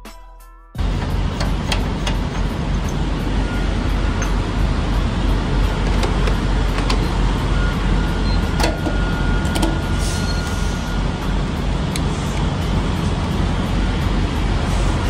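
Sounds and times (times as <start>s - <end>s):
diesel engines idling: 0.8s - 15.0s
fuel nozzle clicks and knocks: 1.0s - 3.0s.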